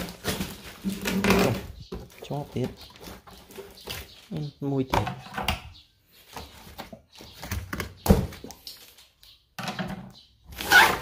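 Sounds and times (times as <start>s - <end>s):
rustling: 0.0s - 4.3s.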